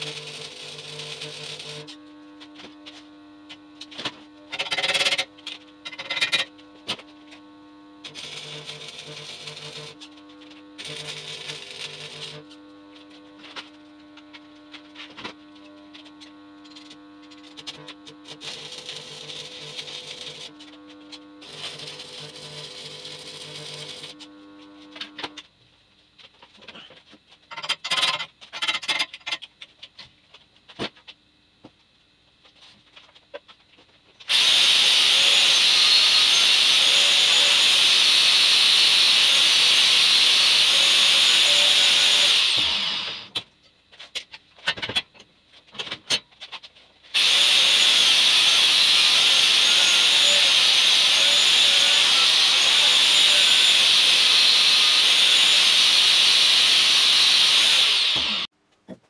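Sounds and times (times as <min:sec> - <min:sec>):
angle grinder grinding steel: 0:00.0 - 0:03.0, 0:03.8 - 0:25.2, 0:34.3 - 0:43.3, 0:47.1 - 0:58.5.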